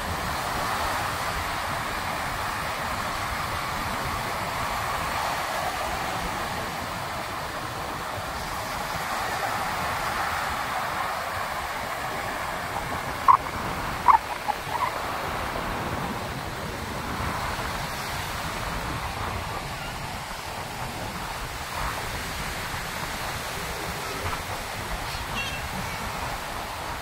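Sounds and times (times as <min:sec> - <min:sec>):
sea wind: 0:00.0 - 0:27.0
waves breaking on beach: 0:00.0 - 0:27.0
short sharp high calls: 0:25.1 - 0:25.9.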